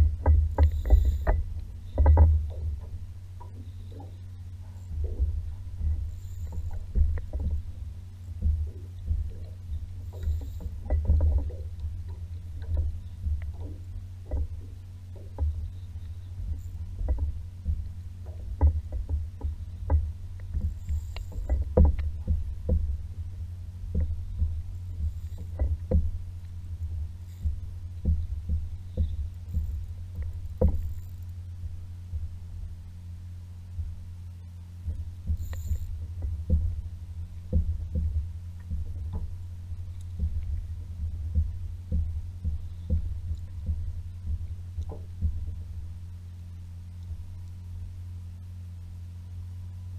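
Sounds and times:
water lapping: 0.0 - 46.1
muffled low rumble: 0.0 - 49.9
knocks on a paddleboard: 0.2 - 2.6.

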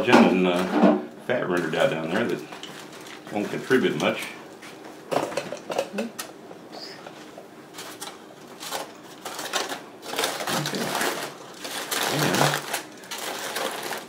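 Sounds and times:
aluminium foil crinkling: 1.4 - 4.4, 7.2 - 14.0.

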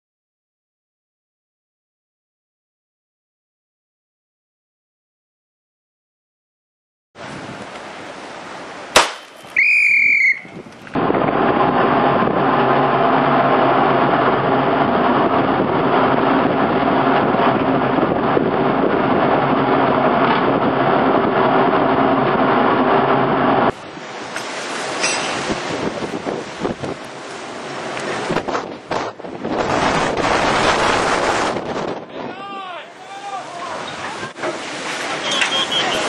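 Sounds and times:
wind buffeting microphone: 7.2 - 7.8, 10.3 - 32.6
machine drone with low hum: 11.0 - 25.4
short high beep: 35.2 - 36.0.

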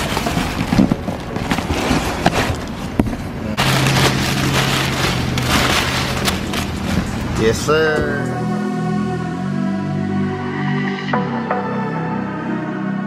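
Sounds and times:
plastic and paper rustling: 0.0 - 8.2.

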